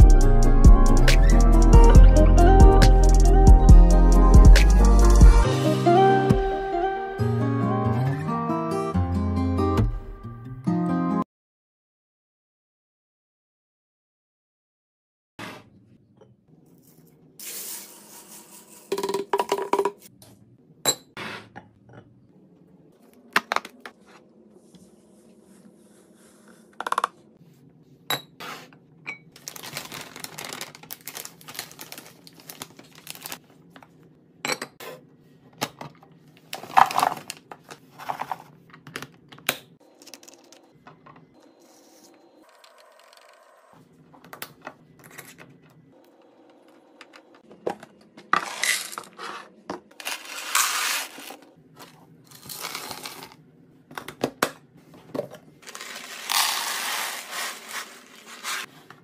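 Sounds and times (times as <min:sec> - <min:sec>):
crinkly plastic pouch: 0:29.4 - 0:33.4, 0:52.3 - 0:53.3, 0:55.6 - 0:58.7
candy beads poured into glass jar: 0:50.0 - 0:51.4, 0:55.6 - 0:58.7.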